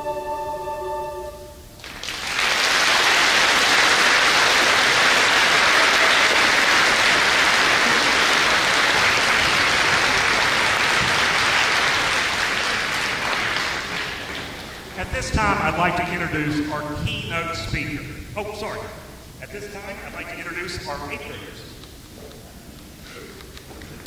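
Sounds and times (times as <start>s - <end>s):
choir and string orchestra chord: 0.0s - 1.7s
audience applause: 1.8s - 16.2s.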